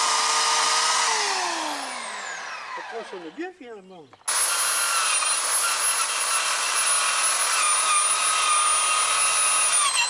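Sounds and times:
drill wire brush on metal: 0:04.3 - 0:10.0.

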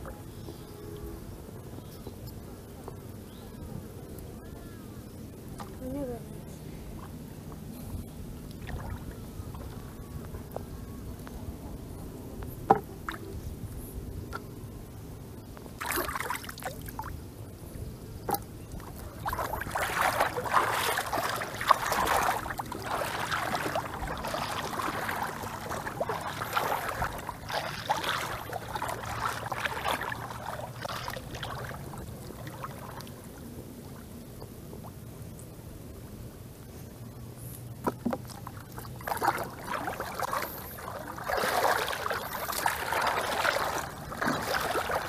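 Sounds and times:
shallow water splashing: 0:08.5 - 0:09.9, 0:15.8 - 0:17.2, 0:18.2 - 0:34.1, 0:37.8 - 0:45.0.

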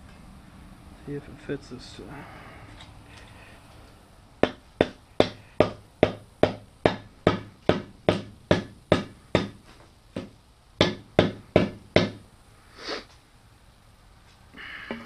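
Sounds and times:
rubber mallet knocking axe head: 0:04.4 - 0:09.6, 0:10.2 - 0:12.2.

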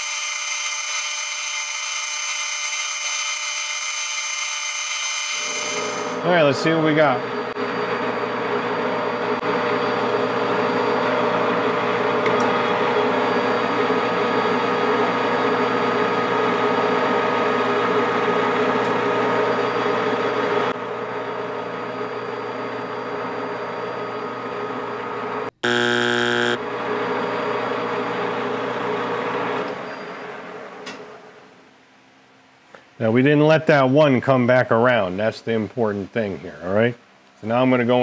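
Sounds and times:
buzzing tone: 0:00.0 - 0:06.2, 0:25.5 - 0:26.7
metal lathe humming: 0:05.4 - 0:14.2, 0:25.6 - 0:26.9.

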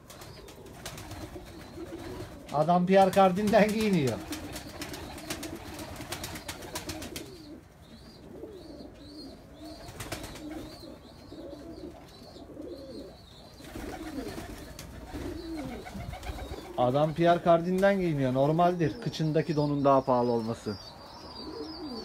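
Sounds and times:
pigeons cooing: 0:00.0 - 0:22.0.

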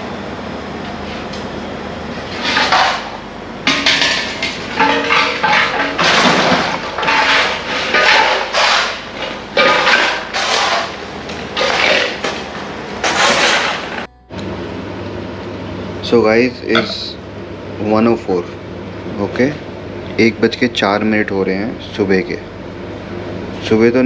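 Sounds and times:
steady background hum: 0:00.0 - 0:24.0
metallic clanks: 0:03.7 - 0:08.7, 0:16.8 - 0:17.2
rubble scraping and clattering: 0:04.6 - 0:09.0.

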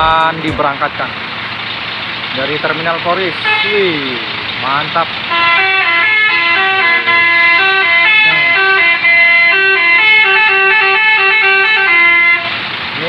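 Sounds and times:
bus air horn playing a tune: 0:03.4 - 0:04.4, 0:05.2 - 0:12.6.

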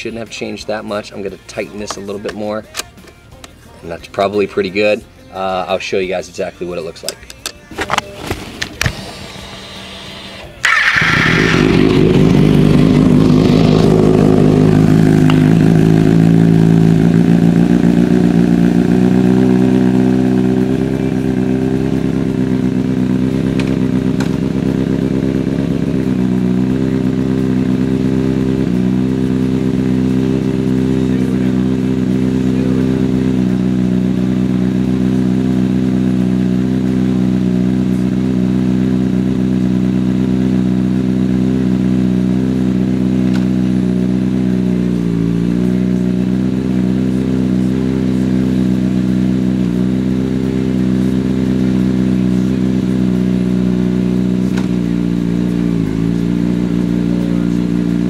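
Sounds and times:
motorcycle engine idling: 0:08.8 - 0:58.0.

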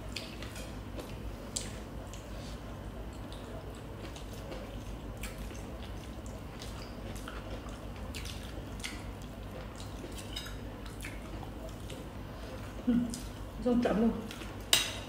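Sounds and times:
low steady hum: 0:00.0 - 0:15.0
wet chewing and mouth smacks: 0:03.1 - 0:12.1.

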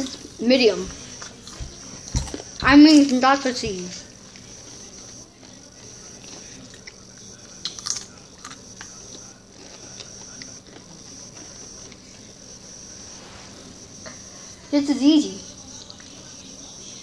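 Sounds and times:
faint high whine: 0:00.0 - 0:17.0
chips crunching while chewed: 0:05.4 - 0:12.2.

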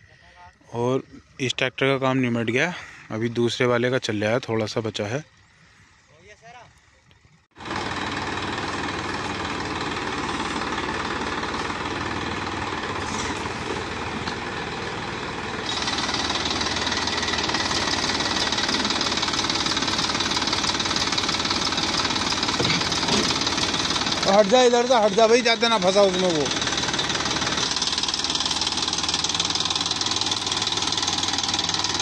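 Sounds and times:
tractor diesel engine under load: 0:07.5 - 0:32.0.

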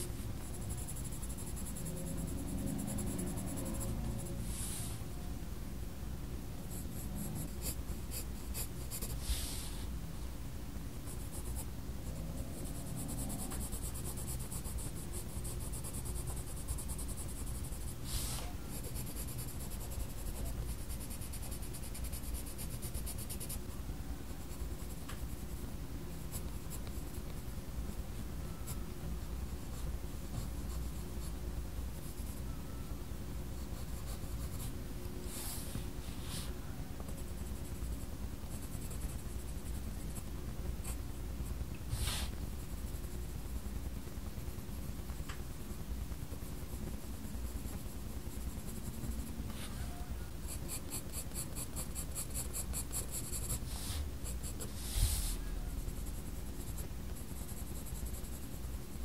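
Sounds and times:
pencil scratching on paper: 0:00.0 - 0:04.8, 0:06.7 - 0:09.5, 0:11.1 - 0:23.6, 0:37.0 - 0:41.0, 0:50.5 - 0:59.0.

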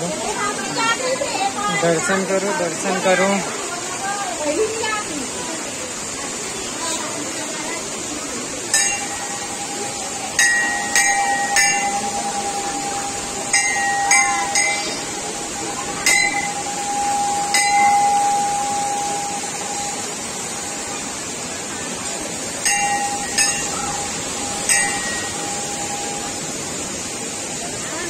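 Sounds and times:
steady rushing noise: 0:00.0 - 0:28.0
brass bells ringing: 0:08.7 - 0:21.2, 0:22.3 - 0:27.1
held high tone: 0:08.7 - 0:21.3, 0:22.6 - 0:26.7.

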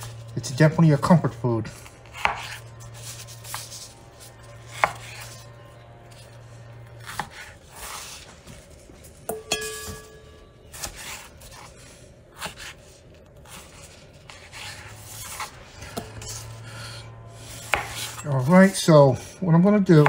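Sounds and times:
knife scraping through meat: 0:01.7 - 0:08.4, 0:10.7 - 0:18.5.

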